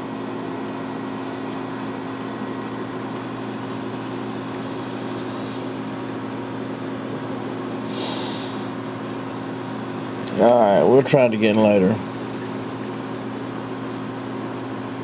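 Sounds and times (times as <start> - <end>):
aquarium pumps humming: 0.0 - 15.0.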